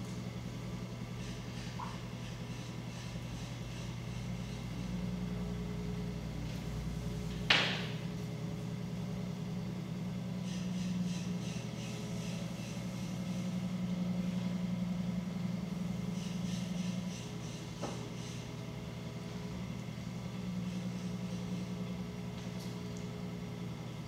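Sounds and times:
potter's wheel motor humming: 0.0 - 24.0
sharp knock: 7.5 - 8.0.

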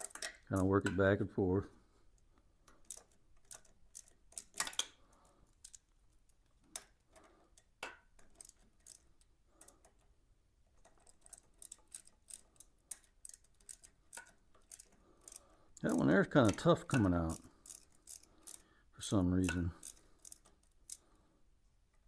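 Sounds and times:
ratchet wrench clicking: 0.0 - 0.7, 2.7 - 5.9, 6.7 - 10.0, 10.8 - 18.7, 19.4 - 21.1.

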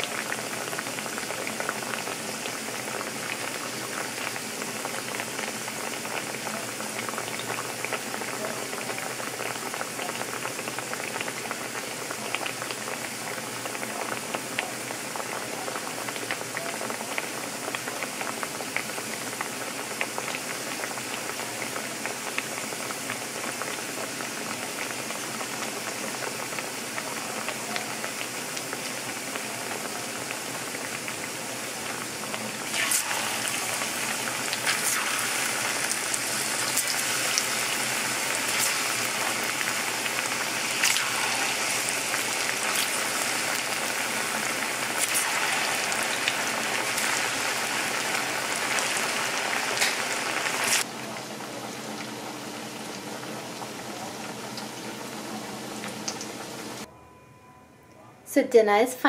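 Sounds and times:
plantain frying in hot oil: 0.0 - 56.9.

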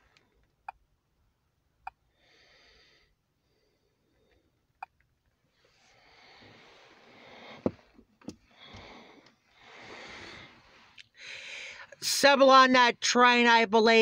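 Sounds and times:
sniffing and breathing: 8.4 - 11.8.

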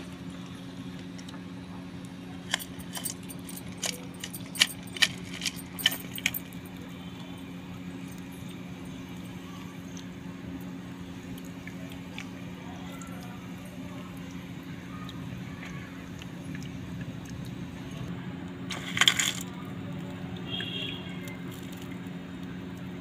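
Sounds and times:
low hum: 0.0 - 23.0
clay chunks clicking together: 2.4 - 6.8.

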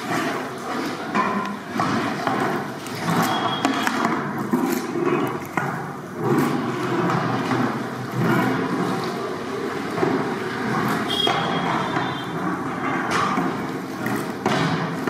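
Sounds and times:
ladle stirring curry in pot: 0.0 - 15.0.

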